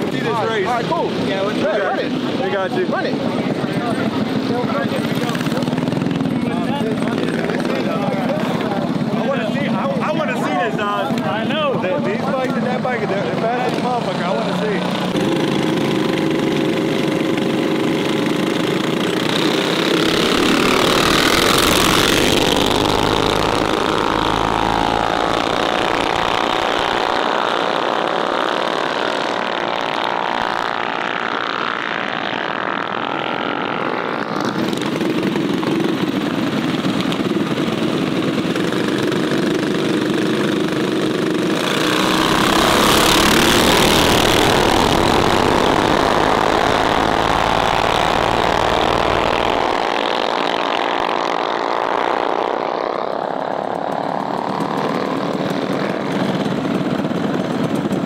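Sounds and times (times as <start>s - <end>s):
mini bike engines revving: 0.0s - 58.0s.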